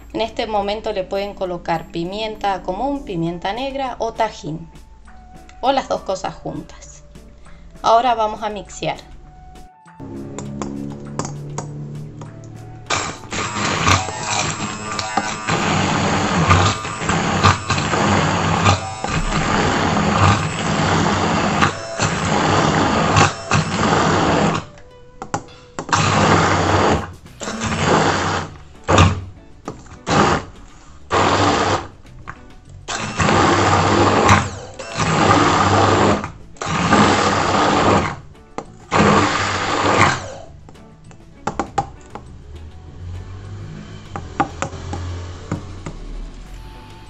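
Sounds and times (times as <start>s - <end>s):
immersion blender bursts: 12.4s - 24.7s, 25.9s - 29.2s, 30.0s - 31.9s, 32.9s - 38.2s, 38.9s - 40.5s.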